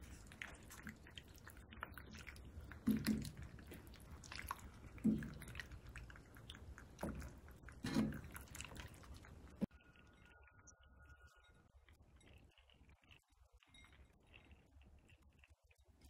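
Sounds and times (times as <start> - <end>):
wet squishing of stirred pasta: 0.0 - 10.7.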